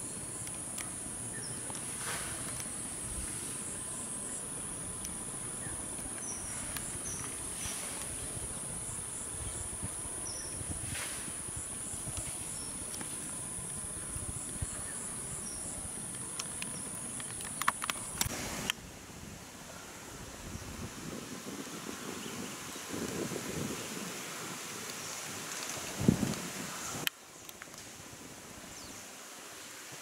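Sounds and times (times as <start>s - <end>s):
insect buzzing drone: 0.0s - 18.7s
sharp clicks: 16.1s - 18.8s.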